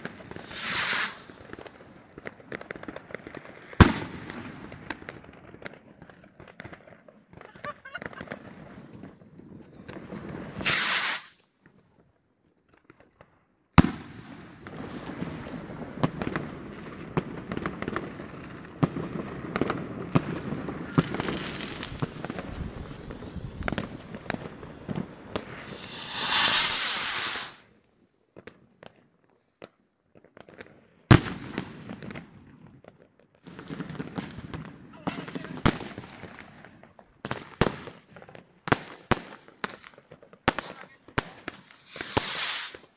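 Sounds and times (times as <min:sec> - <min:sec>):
firework rockets whooshing up: 0:00.0 - 0:03.0, 0:07.5 - 0:11.5, 0:13.8 - 0:27.7, 0:34.2 - 0:36.9, 0:40.6 - 0:42.9
firework bangs: 0:00.0 - 0:05.8, 0:06.4 - 0:11.4, 0:13.8 - 0:27.7, 0:33.5 - 0:42.9
fireworks crackling and popping: 0:00.0 - 0:42.9.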